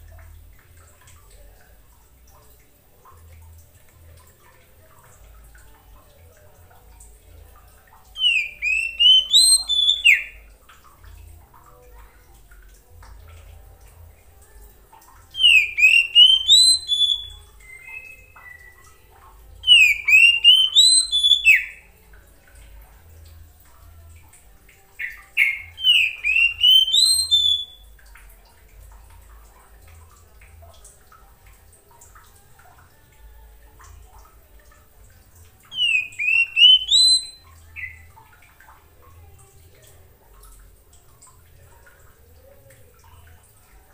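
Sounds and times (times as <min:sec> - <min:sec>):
bird singing whistled notes: 0:08.1 - 0:10.5, 0:15.3 - 0:18.9, 0:19.6 - 0:21.9, 0:25.0 - 0:27.9, 0:35.7 - 0:38.2.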